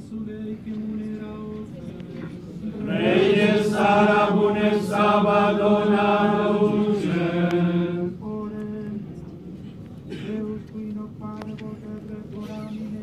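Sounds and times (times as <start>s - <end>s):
group singing a chant: 2.6s - 8.6s.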